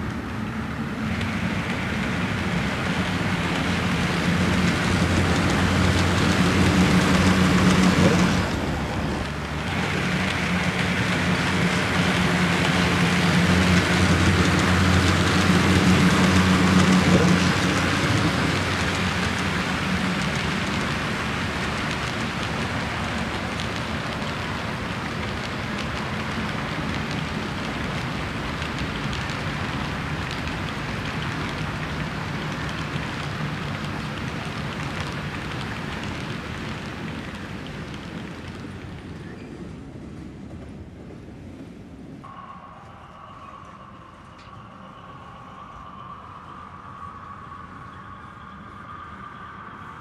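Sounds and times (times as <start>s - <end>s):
low motor hum: 0.0s - 37.3s
model train wheels on rails: 0.0s - 50.0s.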